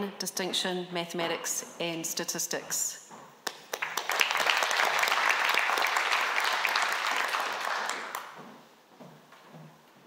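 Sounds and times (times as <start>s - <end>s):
audience applauding: 3.5s - 8.4s.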